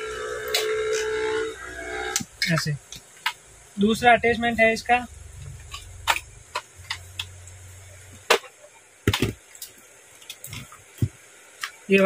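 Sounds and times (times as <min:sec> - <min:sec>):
low massager hum: 0:00.0 - 0:02.6
plastic clicks and knocks: 0:08.2 - 0:11.8.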